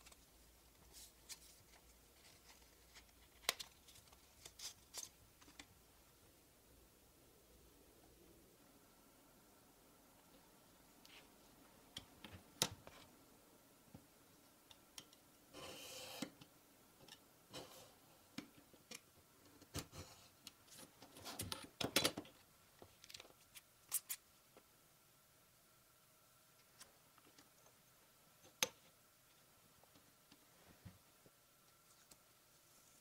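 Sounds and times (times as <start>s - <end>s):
utility knife scraping along ruler: 15.5s - 16.3s.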